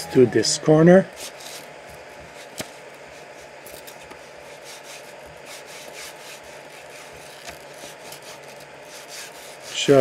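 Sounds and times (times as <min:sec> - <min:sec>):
steady low hum: 0:00.0 - 0:10.0
paper scraping under printer nozzle: 0:02.3 - 0:10.0.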